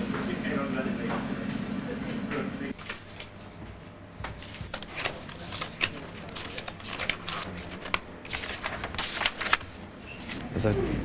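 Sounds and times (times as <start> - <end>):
paper rustling: 2.8 - 10.5.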